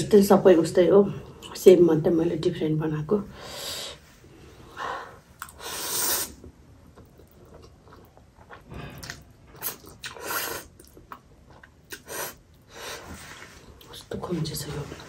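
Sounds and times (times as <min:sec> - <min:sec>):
chewing: 0:06.8 - 0:12.6.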